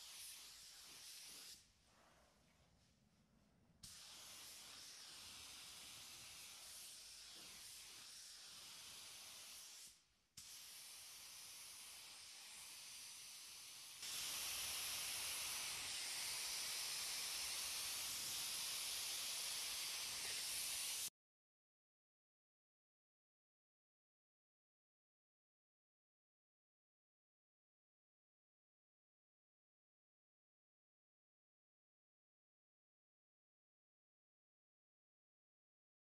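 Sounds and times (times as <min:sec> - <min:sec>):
paint spray gun hissing: 0:00.0 - 0:01.6, 0:03.8 - 0:21.1.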